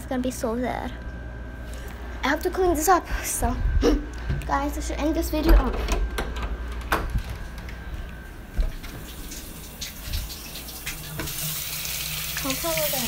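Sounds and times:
tap water running into basin: 0:08.8 - 0:13.0.

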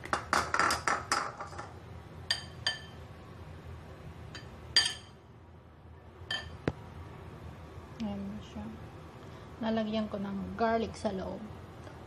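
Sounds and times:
metal spoon clinking on ceramic bowl: 0:02.3 - 0:03.0, 0:04.4 - 0:05.2, 0:06.3 - 0:06.6.

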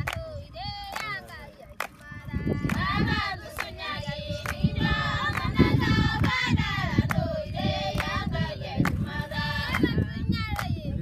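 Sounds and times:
hand claps: 0:00.0 - 0:00.2, 0:00.8 - 0:02.0, 0:02.6 - 0:03.8, 0:04.4 - 0:05.6, 0:08.8 - 0:09.0, 0:09.7 - 0:10.8
women singing together: 0:00.0 - 0:11.0.

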